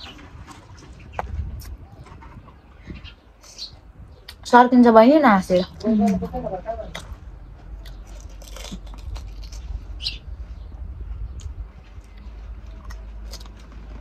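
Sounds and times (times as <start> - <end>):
low steady rumble: 0.0 - 14.0
crisp food crunching and chewing: 6.9 - 10.2, 11.2 - 14.0.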